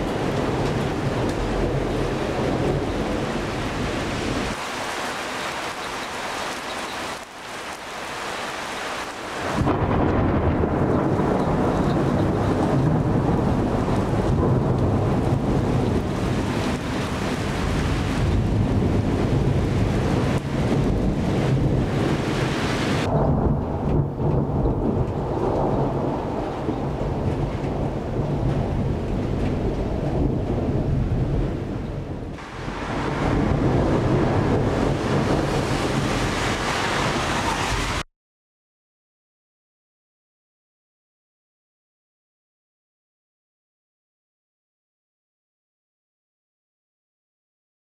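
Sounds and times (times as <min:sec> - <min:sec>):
low roll of thunder: 0:00.0 - 0:04.6, 0:09.5 - 0:38.0
rain hissing: 0:00.0 - 0:09.8, 0:20.4 - 0:23.1, 0:32.4 - 0:38.0.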